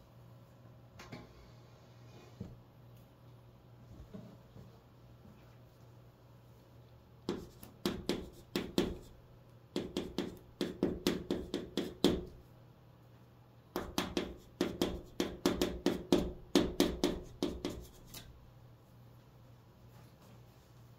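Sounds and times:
chalk writing on chalkboard: 7.3s - 9.2s, 9.8s - 12.3s, 13.8s - 18.4s.

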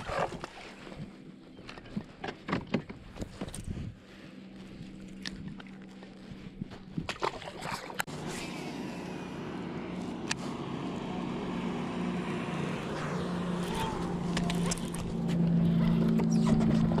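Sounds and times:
knocks and taps in kayak: 2.2s - 3.6s
fish splashing: 12.9s - 15.4s.

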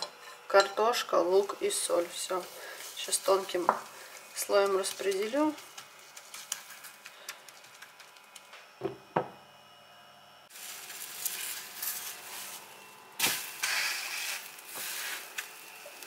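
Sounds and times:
pancake sizzling in pan: 1.3s - 7.0s, 10.5s - 16.0s.

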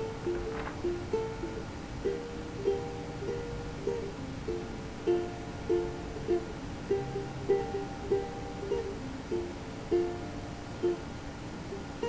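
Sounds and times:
plucked-string tune: 0.0s - 12.0s.

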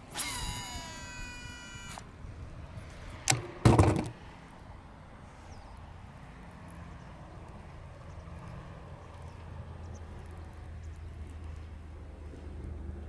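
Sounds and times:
reel spool whirring whine: 0.0s - 2.1s.

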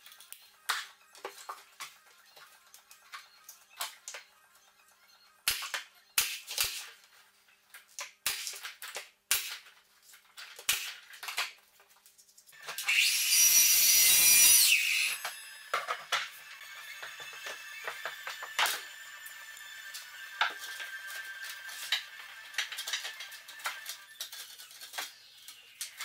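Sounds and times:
nail gun shots: 5.5s - 6.9s, 8.2s - 8.6s, 9.3s - 9.6s, 10.6s - 11.0s
mitre saw running: 12.6s - 24.2s.

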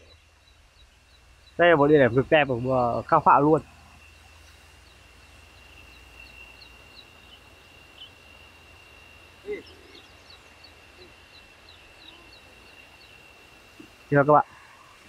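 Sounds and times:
high-pitched insect drone: 0.0s - 15.0s
low animal call: 9.3s - 15.0s.

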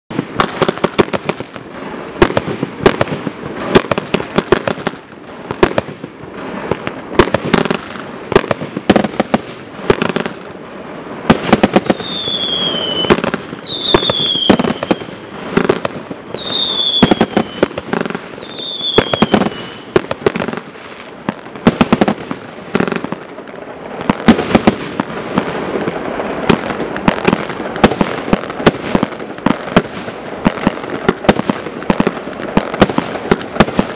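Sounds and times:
fireworks launch thumps and bursts: 2.2s - 10.4s, 26.5s - 33.9s.

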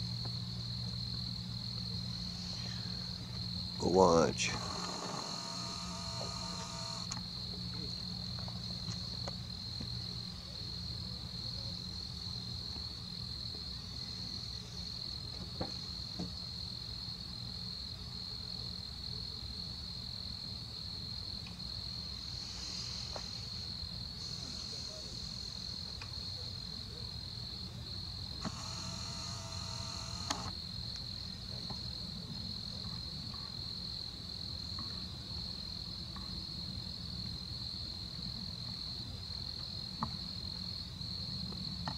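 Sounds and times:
low steady hum: 0.0s - 7.2s
crickets chirring: 0.0s - 41.9s.

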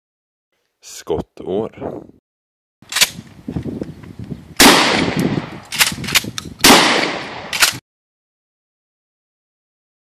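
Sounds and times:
shotgun blasts: 4.6s - 7.8s
shotgun pump clacks: 7.5s - 7.8s.

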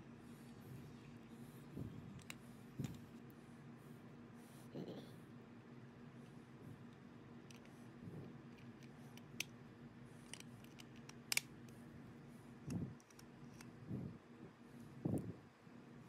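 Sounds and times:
plastic parts clicking and tapping: 10.2s - 11.5s, 12.7s - 13.7s.

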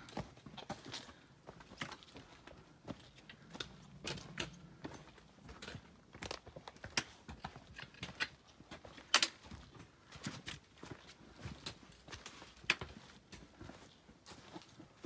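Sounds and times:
footsteps on dry leaves and stones: 0.0s - 15.0s.

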